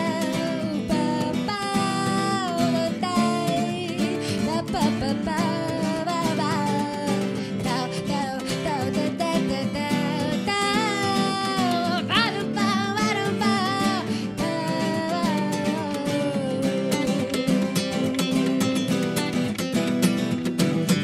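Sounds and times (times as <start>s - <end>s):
woman singing with vibrato: 0.0s - 19.1s
acoustic guitars strumming: 0.0s - 21.0s.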